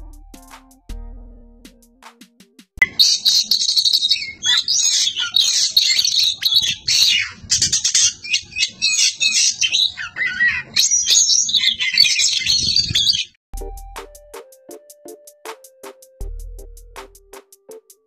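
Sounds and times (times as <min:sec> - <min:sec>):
bird singing high whistles: 0:02.8 - 0:07.4.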